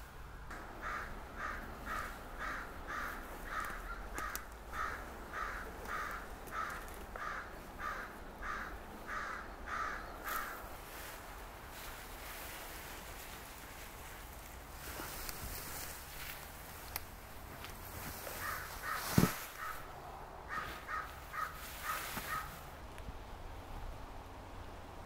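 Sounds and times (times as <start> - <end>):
bird calling: 0.5 - 10.7, 18.0 - 19.9, 20.5 - 22.6.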